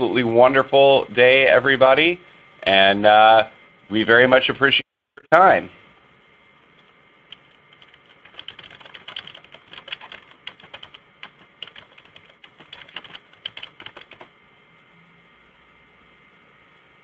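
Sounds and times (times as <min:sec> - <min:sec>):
computer keyboard typing: 0:06.8 - 0:14.3.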